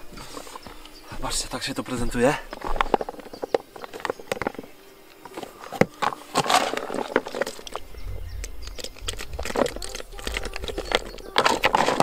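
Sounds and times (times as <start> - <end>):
bait clicking in a bucket: 5.7 - 12.0
low rumble: 7.8 - 11.7.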